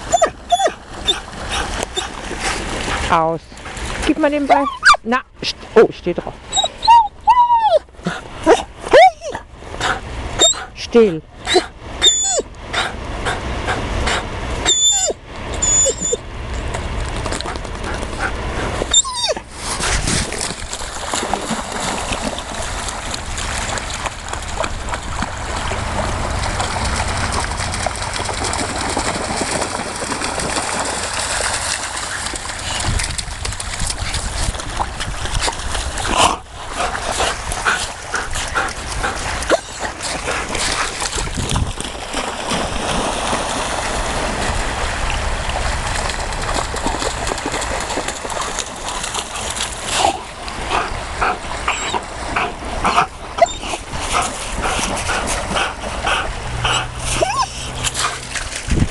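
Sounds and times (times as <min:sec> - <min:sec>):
dog noises: 0:00.0 - 0:02.2, 0:04.4 - 0:05.1, 0:06.5 - 0:16.2, 0:36.1 - 0:41.0, 0:49.9 - 0:58.4
dogs splashing through water: 0:00.0 - 0:58.9.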